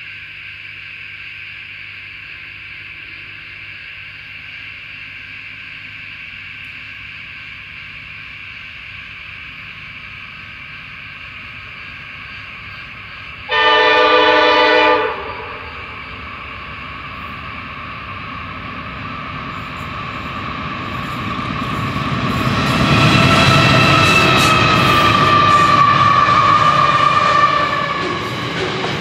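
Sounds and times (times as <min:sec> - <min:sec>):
locomotive horn blast: 0:13.5 - 0:16.0
locomotive engine and wheel noise: 0:14.3 - 0:29.0.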